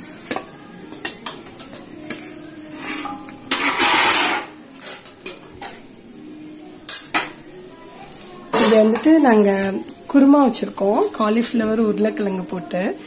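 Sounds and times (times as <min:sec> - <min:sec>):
metal spoon scraping metal: 0:02.7 - 0:05.1.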